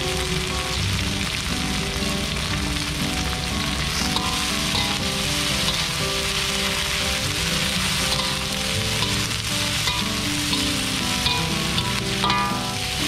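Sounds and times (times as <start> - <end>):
flowers sizzling in a wok: 0.0 - 13.0
metal spatula tossing: 4.2 - 6.0, 7.9 - 13.0.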